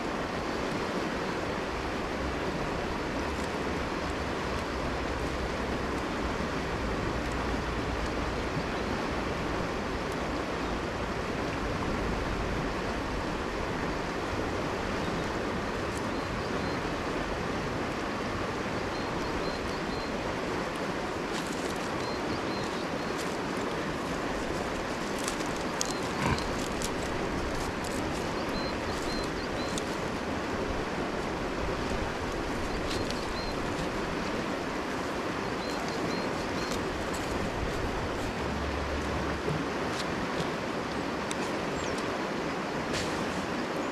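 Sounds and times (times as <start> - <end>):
river flowing over stones: 0.0 - 43.9
dry sticks crackling: 20.7 - 39.1.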